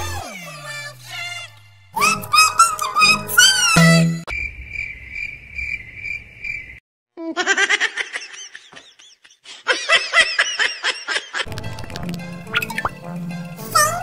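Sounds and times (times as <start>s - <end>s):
rapid high-pitched laughter: 7.2s - 11.5s.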